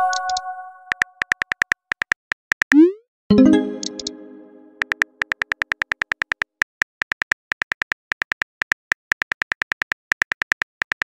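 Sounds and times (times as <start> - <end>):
phone keyboard typing clicks: 0.0 - 2.8, 3.6 - 4.2
synthetic message chime: 2.8 - 4.8.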